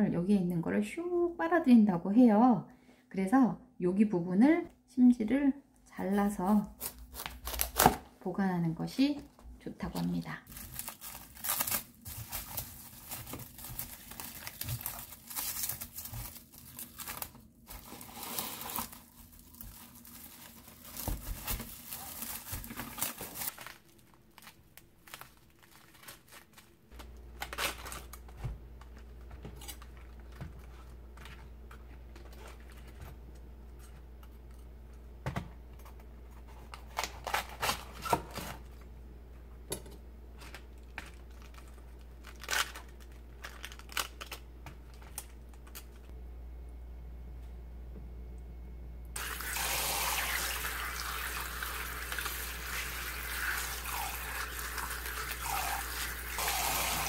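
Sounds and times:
cabbage leaves snapping: 6.8s - 8.0s, 10.5s - 17.4s
plastic cling wrap crinkling: 9.7s - 34.6s, 40.4s - 46.1s, 49.2s - 57.0s
steady low hum: 38.6s - 49.2s.

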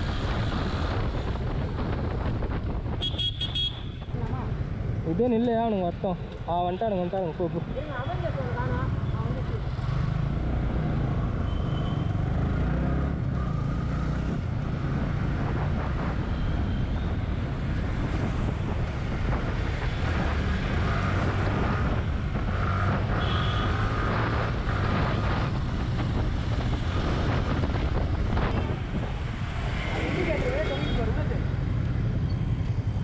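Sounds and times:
wind on microphone: 0.0s - 3.2s, 14.2s - 23.4s, 24.0s - 33.0s
road traffic: 0.0s - 33.0s.

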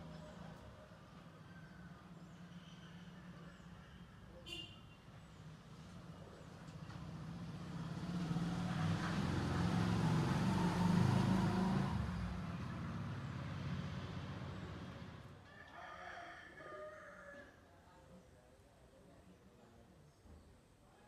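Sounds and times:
vehicle passing: 5.4s - 15.4s.

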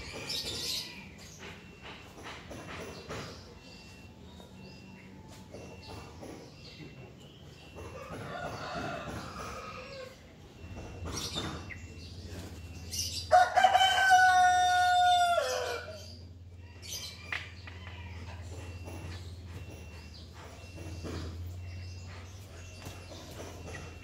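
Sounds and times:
rooster crowing: 8.0s - 10.2s, 13.3s - 16.1s.

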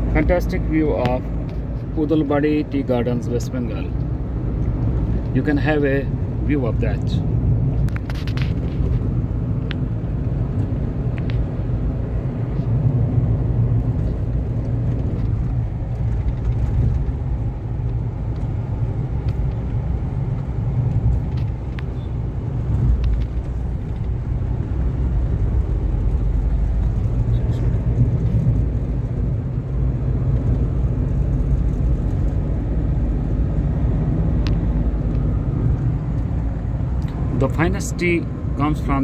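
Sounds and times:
vehicle road noise from inside cabin: 0.0s - 39.0s
faint clicks and rattles: 14.1s - 18.5s.

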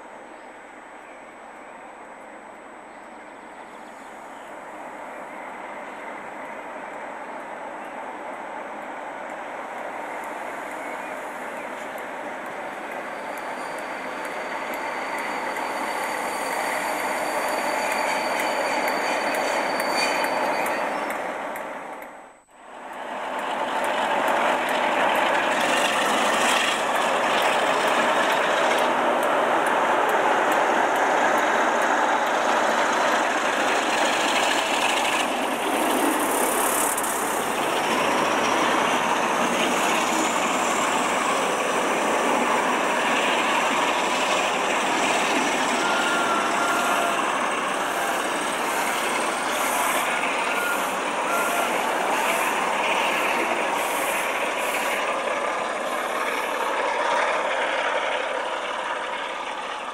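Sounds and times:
coaches rumbling on rails: 0.0s - 59.9s
diesel locomotive under power: 0.0s - 59.9s.

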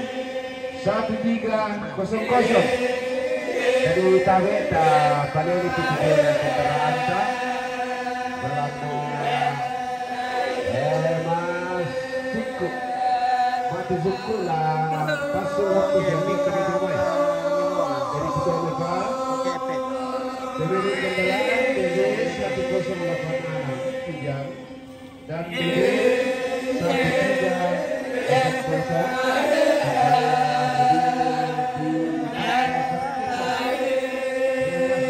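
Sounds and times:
group of voices chanting: 0.0s - 35.0s.

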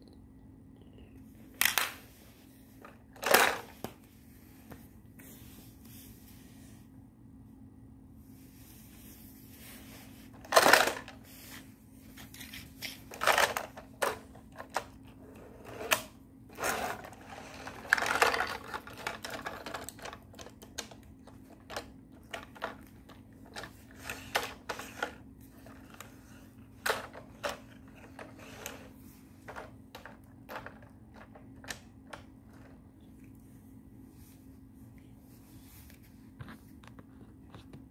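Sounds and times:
faint steady hum: 0.0s - 37.9s
plastic toy pieces clattering: 3.2s - 3.7s, 10.4s - 11.2s, 12.8s - 15.0s, 16.6s - 25.8s.

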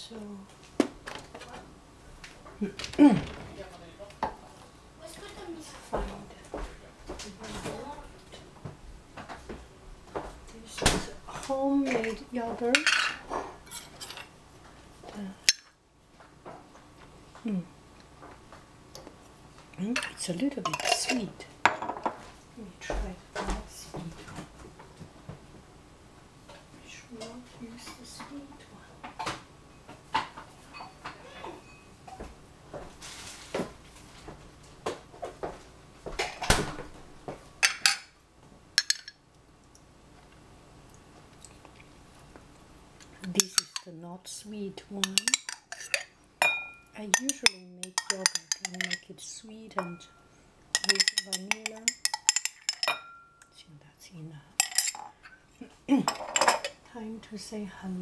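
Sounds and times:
glass jar clinking on ceramic bowl: 38.8s - 39.2s, 43.2s - 43.9s, 45.0s - 49.1s, 49.8s - 50.2s, 50.8s - 53.5s, 54.6s - 55.2s.

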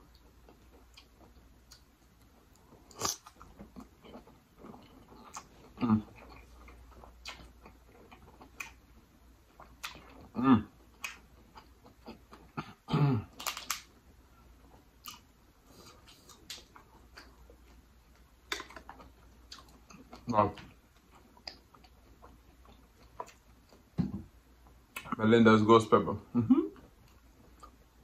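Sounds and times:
wet chewing and lip smacks: 0.0s - 12.8s, 14.6s - 23.9s
person humming: 26.4s - 26.8s.

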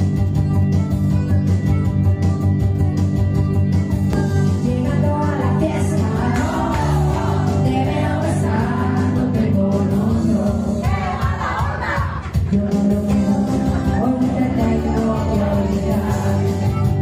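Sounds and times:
pop music with steady beat: 0.0s - 17.0s
person singing: 4.1s - 17.0s.

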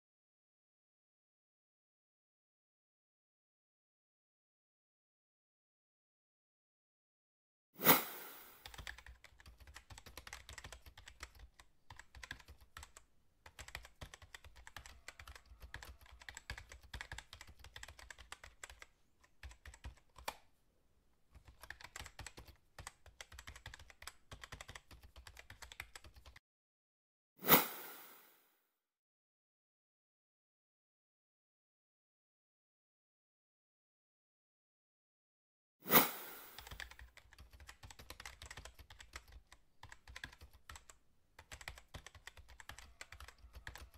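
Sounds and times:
keyboard typing clicks: 8.2s - 20.4s, 21.4s - 26.4s, 36.2s - 43.9s.

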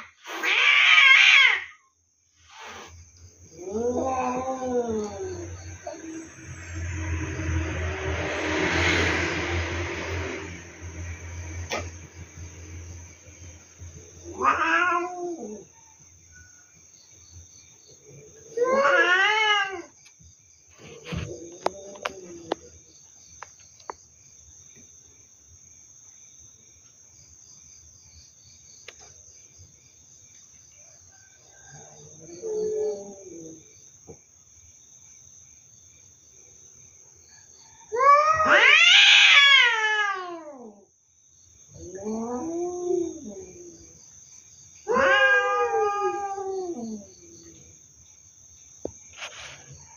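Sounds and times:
cats yowling: 0.0s - 2.0s, 3.5s - 7.5s, 14.0s - 15.8s, 18.0s - 20.0s, 20.9s - 22.8s, 31.8s - 33.6s, 37.8s - 40.9s, 41.7s - 44.0s, 44.8s - 47.7s.

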